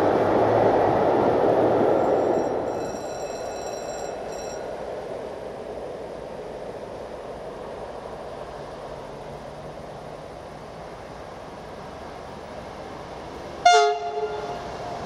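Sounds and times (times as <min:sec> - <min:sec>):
distant train rumble: 0:00.0 - 0:15.0
high multi-tone ringing: 0:02.0 - 0:04.8.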